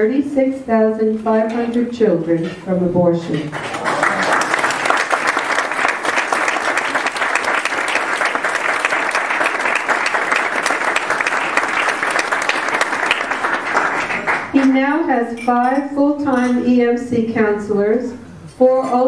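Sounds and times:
audience applauding: 3.5 - 14.7.

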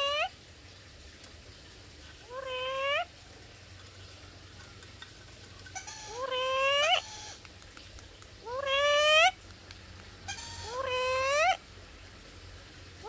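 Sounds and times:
parrot calling: 0.0 - 0.3, 2.2 - 3.1, 5.6 - 7.4, 8.4 - 9.4, 10.3 - 11.6.

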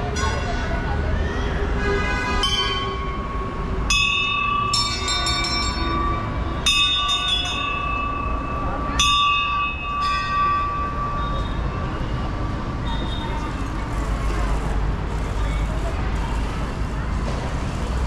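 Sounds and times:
temple bells clanging: 0.0 - 1.0, 2.4 - 12.9.

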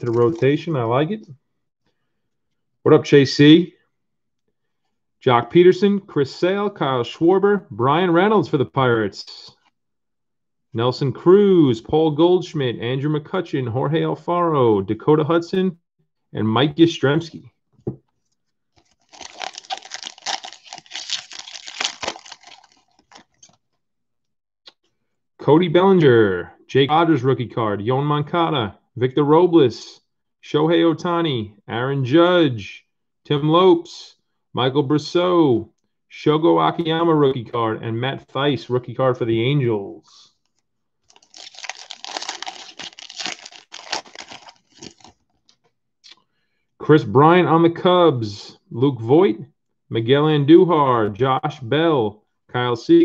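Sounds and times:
foil wrapper crinkling: 18.8 - 23.6, 41.0 - 45.5.

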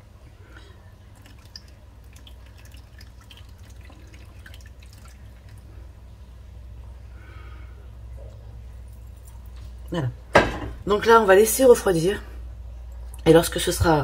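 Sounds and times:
small drips: 0.6 - 5.9
liquid trickling and splashing: 1.0 - 5.8.

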